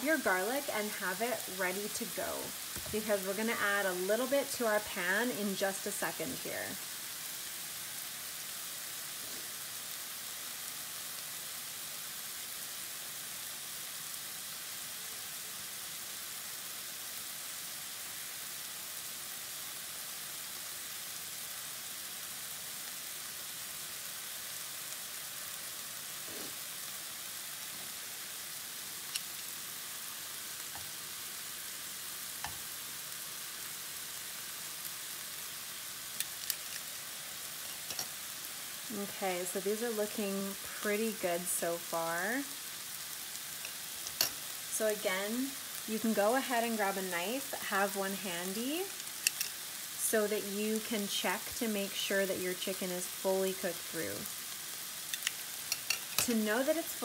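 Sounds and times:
chicken sizzling in a skillet: 0.0 - 57.0
metal tongs clicking on pan: 43.6 - 44.4, 49.2 - 49.6, 55.1 - 56.4.

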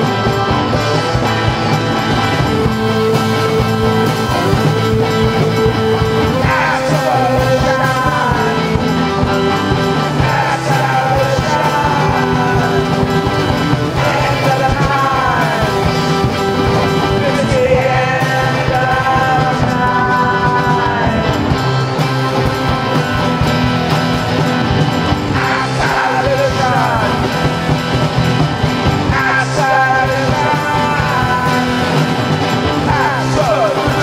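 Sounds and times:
bass: 0.0 - 34.0
drumbeat: 0.0 - 34.0
keyboard chords and melodic lines: 0.0 - 34.0.

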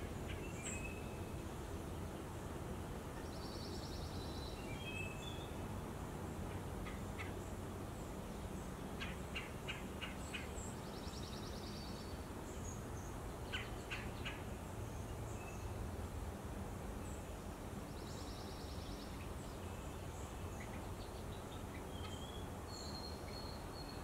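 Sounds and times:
birds trilling and chirping: 13.5 - 14.6.

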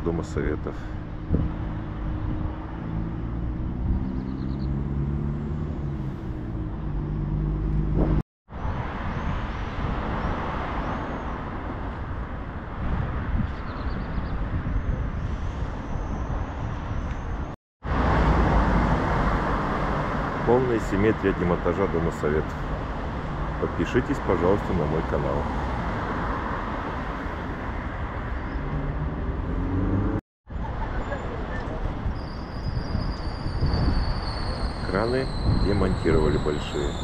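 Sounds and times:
steady traffic noise: 0.0 - 37.0
vehicle engine humming: 1.0 - 8.2
small birds chirping: 3.6 - 4.9.

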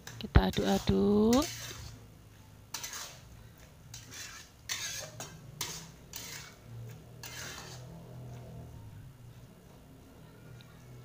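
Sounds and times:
metal spatula scraping a wok: 0.0 - 2.1, 2.7 - 8.7.

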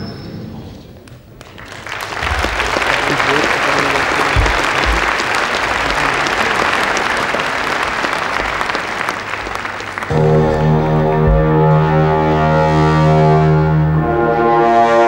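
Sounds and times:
audience applauding: 1.2 - 12.4
deep sustained musical tone: 10.1 - 15.0.

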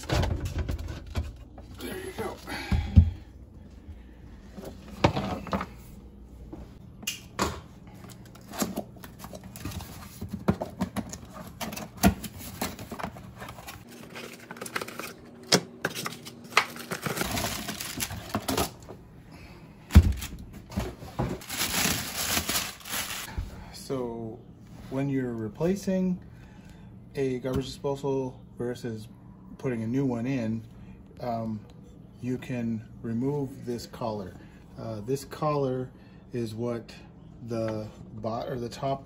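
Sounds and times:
plastic crinkling: 21.4 - 23.3.

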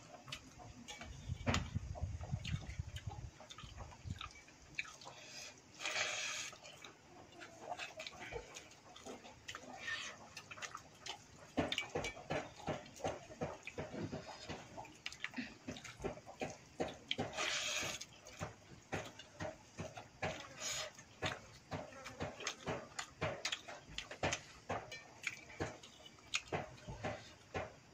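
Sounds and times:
chewing and lip smacks: 2.0 - 27.6
hand squeezing wet rice: 4.9 - 21.8.

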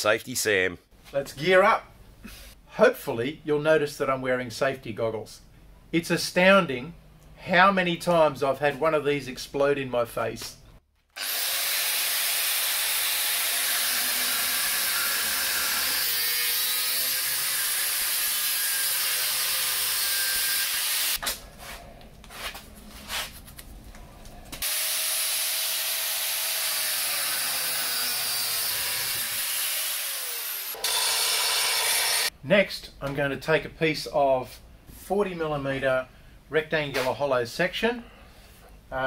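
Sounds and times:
angle grinder cutting steel pipe: 11.2 - 21.2, 24.6 - 32.3.

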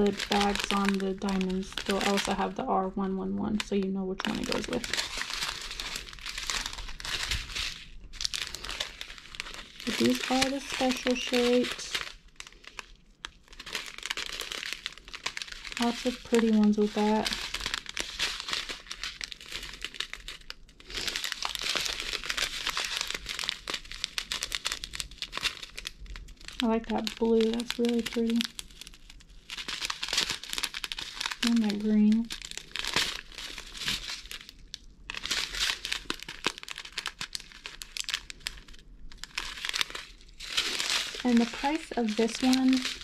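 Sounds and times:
plastic bags crinkling: 0.0 - 43.0
small beads clicking inside bags: 0.0 - 43.0.

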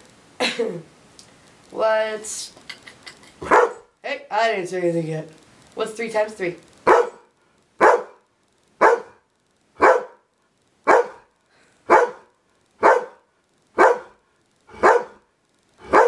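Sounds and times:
dog barking: 3.4 - 3.9, 6.8 - 8.2, 8.8 - 9.2, 9.8 - 11.3, 11.9 - 13.2, 13.8 - 14.2, 14.8 - 15.2.

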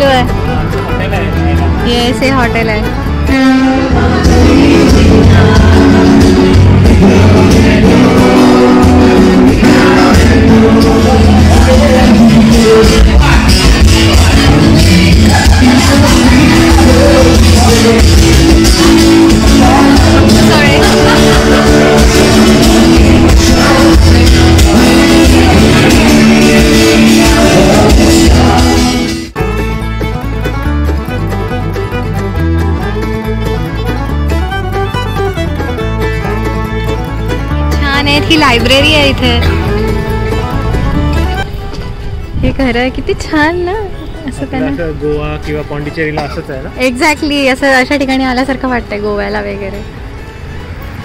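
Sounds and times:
acoustic guitar: 0.0 - 51.0
bar crowd: 3.1 - 29.1
man singing: 3.2 - 29.2.

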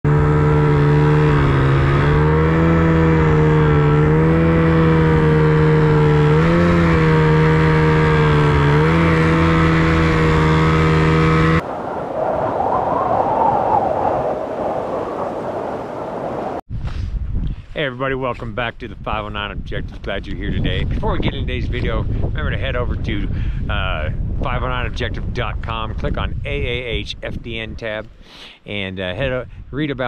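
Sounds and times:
snowmobile engine revving: 0.0 - 11.6
soft rushing noise: 11.6 - 17.9.

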